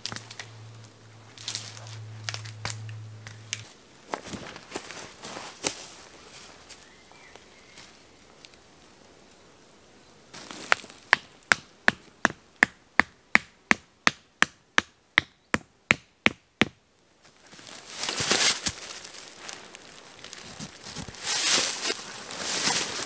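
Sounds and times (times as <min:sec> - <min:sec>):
rustling: 0:00.0 - 0:09.2, 0:10.3 - 0:11.2, 0:17.2 - 0:23.0
peg hammered into ground: 0:10.6 - 0:16.8.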